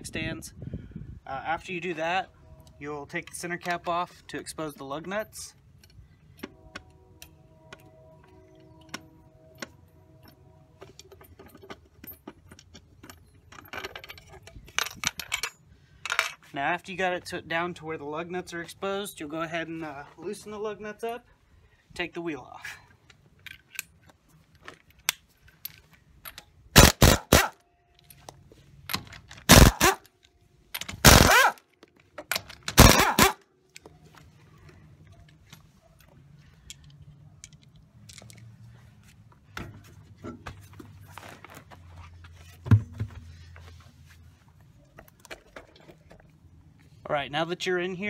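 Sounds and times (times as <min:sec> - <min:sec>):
metal clinks and scrapes: 0:02.6 - 0:16.5
pneumatic impact wrench hammering: 0:26.8 - 0:27.6, 0:29.4 - 0:30.1, 0:30.8 - 0:31.6, 0:32.6 - 0:33.4.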